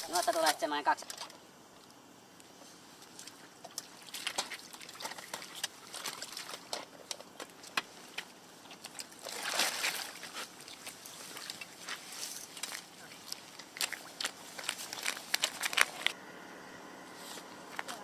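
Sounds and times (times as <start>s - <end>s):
water dribbling: 3.0s - 7.9s
fish flapping and splashing: 3.2s - 7.8s, 8.8s - 16.2s.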